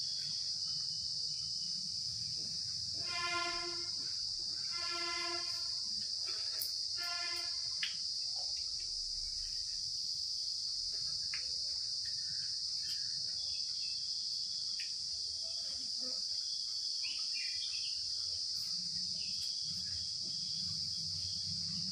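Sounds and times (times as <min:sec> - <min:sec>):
high-pitched insect chorus: 0:00.0 - 0:21.9.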